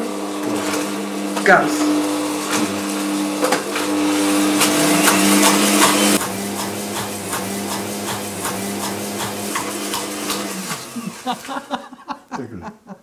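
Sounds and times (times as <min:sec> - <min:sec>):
electric mixer motor hum: 0:00.0 - 0:11.4.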